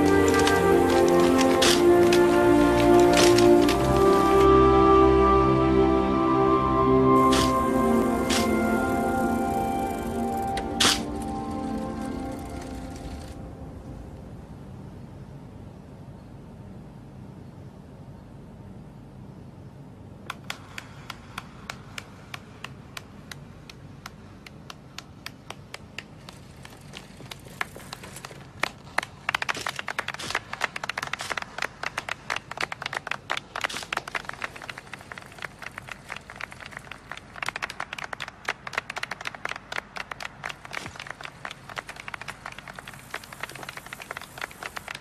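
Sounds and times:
crowd applauding: 0.0s - 4.6s, 7.2s - 13.3s, 20.3s - 45.0s.

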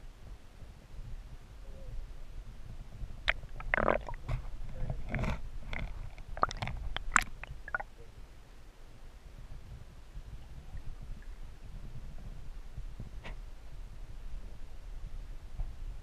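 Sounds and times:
low underwater rumble: 2.4s - 8.2s.

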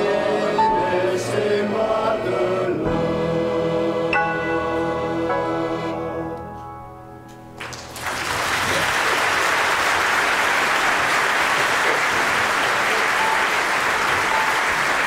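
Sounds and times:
men's choir holding a chord: 0.0s - 6.5s
audience applause: 7.6s - 15.0s.

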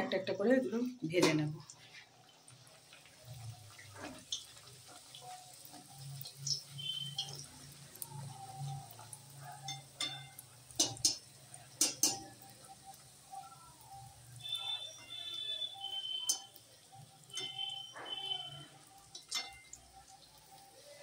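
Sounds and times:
food frying in hot oil: 0.0s - 21.0s
metal spatula clinking on wok: 9.6s - 12.4s, 17.3s - 17.6s, 19.1s - 19.8s.

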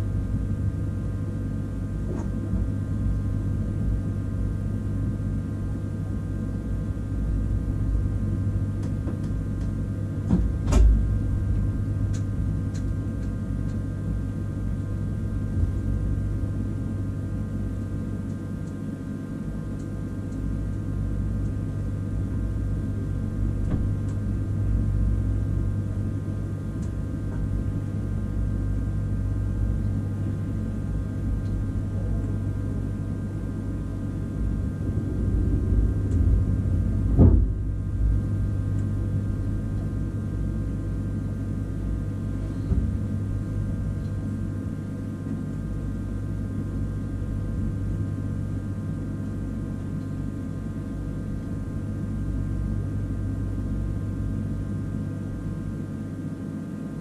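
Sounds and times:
train equipment humming and whining: 0.0s - 53.9s
bumps and thud: 36.2s - 38.0s.

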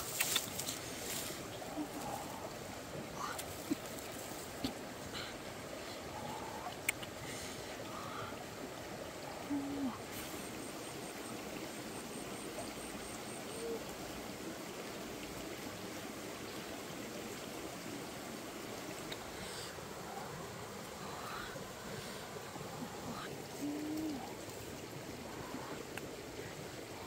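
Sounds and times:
faint high ticks: 0.0s - 1.2s, 6.3s - 7.2s, 18.9s - 19.4s, 25.8s - 26.2s
jungle ambience hiss: 0.0s - 27.0s.

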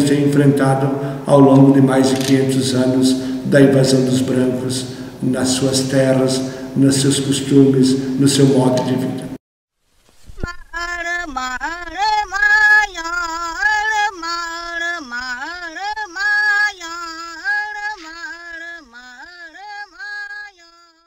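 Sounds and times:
person speaking: 0.0s - 9.4s
woman singing slow melody: 10.4s - 21.0s.

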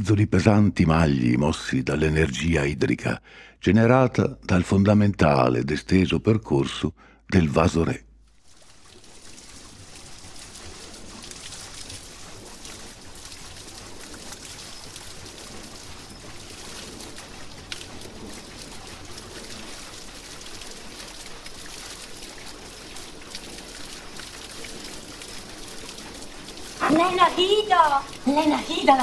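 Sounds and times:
water splashing over water wheel: 8.3s - 29.0s.

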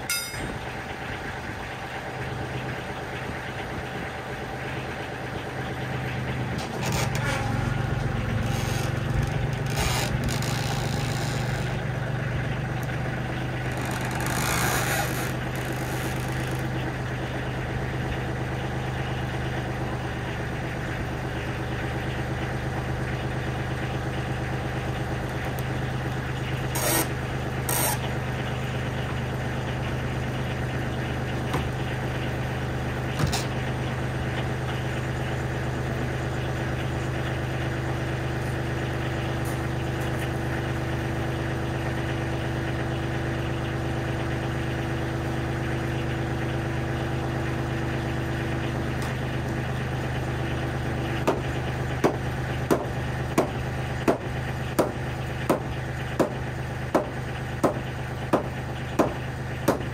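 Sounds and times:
diesel tractor engine idling: 0.0s - 59.9s
hammer striking wood framing: 51.2s - 59.9s.

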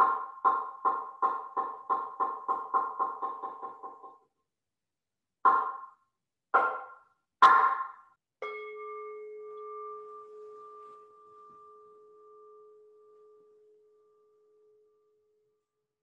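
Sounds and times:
meditation bell ringing: 8.4s - 15.6s.

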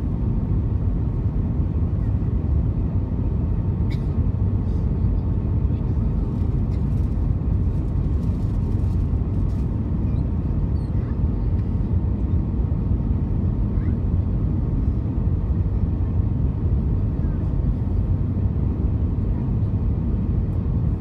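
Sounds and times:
airflow and jet engines rumbling: 0.0s - 21.0s.

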